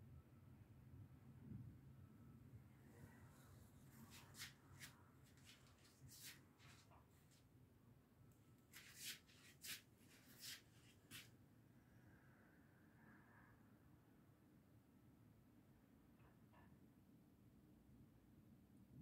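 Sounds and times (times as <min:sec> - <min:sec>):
faint rustling and brushing: 0:03.0 - 0:07.5, 0:08.6 - 0:11.4.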